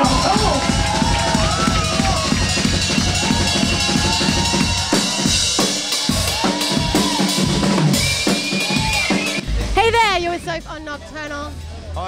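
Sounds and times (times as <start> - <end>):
fast drum-kit beat: 0.0 - 11.6
heavy bass: 0.0 - 12.0.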